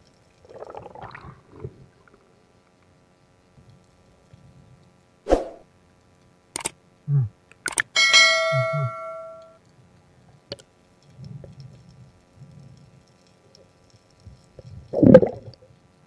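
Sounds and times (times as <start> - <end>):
bell ding: 8.0 - 9.6.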